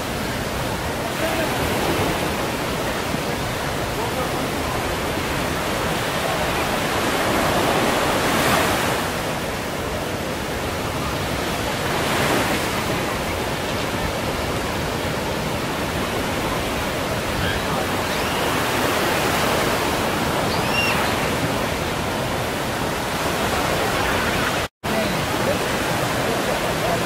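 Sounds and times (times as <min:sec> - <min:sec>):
surf washing on beach: 0:00.0 - 0:27.0
wave breaking: 0:10.8 - 0:27.0.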